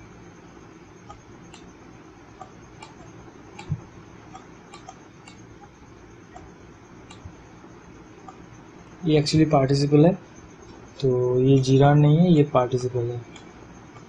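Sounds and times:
stylus tapping on tablet: 2.4 - 5.8.

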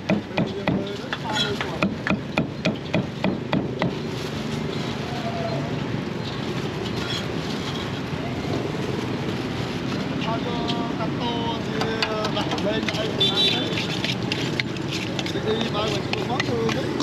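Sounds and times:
cleaver chopping on wooden block: 0.0 - 3.9
street market background noise: 0.0 - 17.0
distant voices: 0.3 - 17.0.

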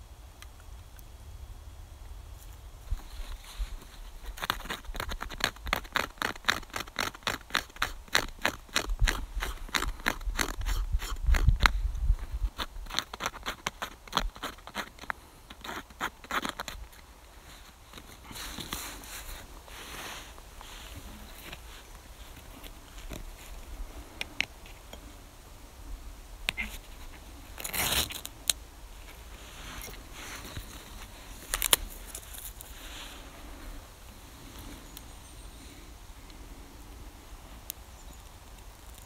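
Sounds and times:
knife scraping bark: 3.1 - 11.7, 12.5 - 23.6, 26.5 - 28.6.

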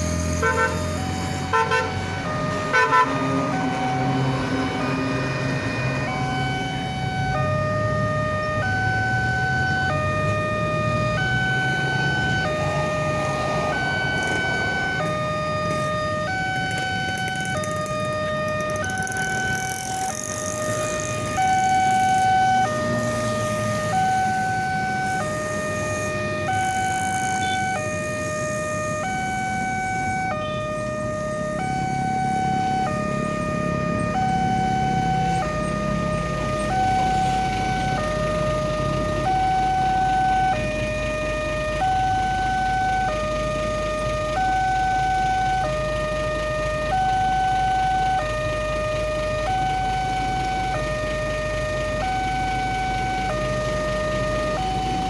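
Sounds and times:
road traffic rumble: 0.0 - 55.0
level crossing two-tone alarm: 18.4 - 55.0.

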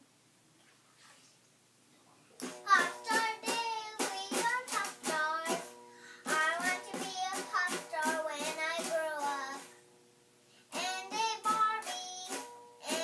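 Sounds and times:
girl singing: 2.5 - 9.8, 10.7 - 13.0.

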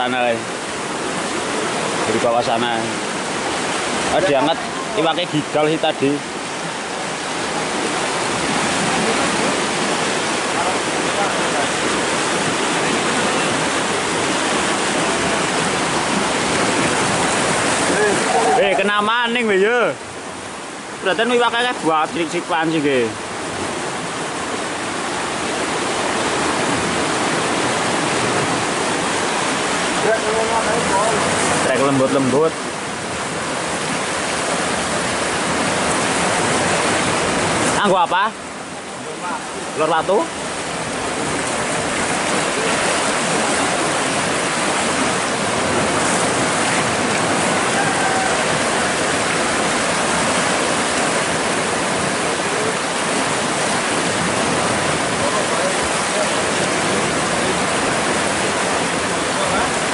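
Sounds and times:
water rushing through channel: 0.0 - 59.9.

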